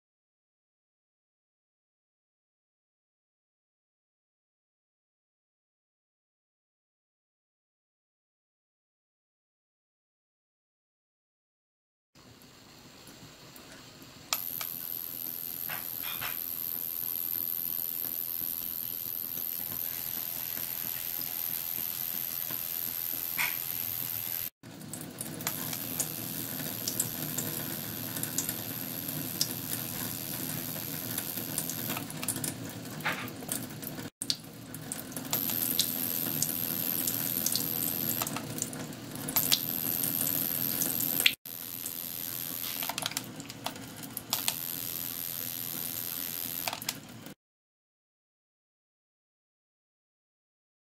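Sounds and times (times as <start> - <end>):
water splashing and sizzling: 13.0 - 47.4
high-pitched whine: 14.3 - 24.5, 25.5 - 32.0, 35.3 - 38.3, 39.4 - 43.0, 44.3 - 46.8.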